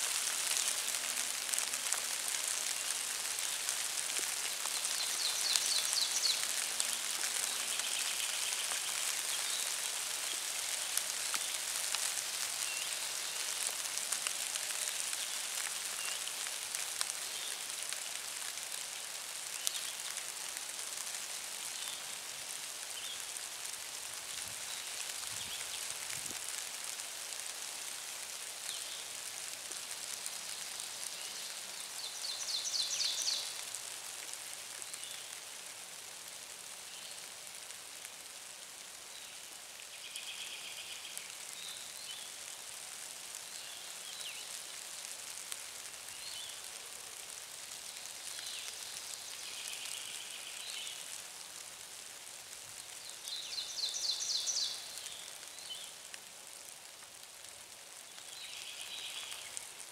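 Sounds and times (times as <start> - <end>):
steady background hiss: 0.0 - 59.9
songbirds singing: 4.7 - 6.6, 30.4 - 33.6, 52.8 - 55.9.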